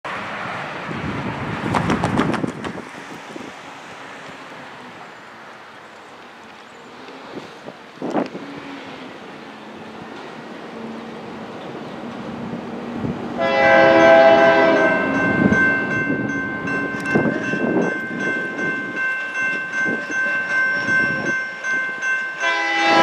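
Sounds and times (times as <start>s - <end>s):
locomotive horn chord: 13.4s - 15.3s, 22.4s - 23.0s
crossing signal bell ringing: 13.4s - 23.0s.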